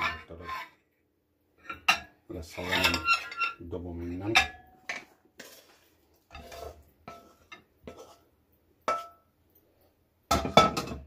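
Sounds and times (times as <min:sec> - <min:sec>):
pan and spatula clinking on plate: 0:04.2 - 0:05.5, 0:08.8 - 0:09.3, 0:10.3 - 0:11.0.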